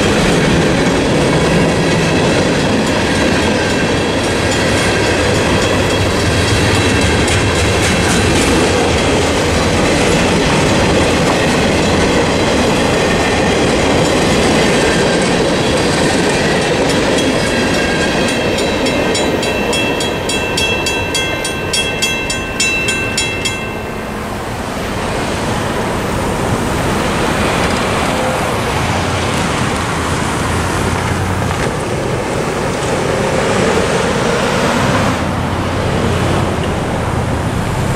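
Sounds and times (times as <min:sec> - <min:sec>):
crossing bell ringing: 0:00.0 - 0:28.8
train wheels clattering on rail joints: 0:00.0 - 0:37.0
road vehicles driving: 0:00.0 - 0:37.9.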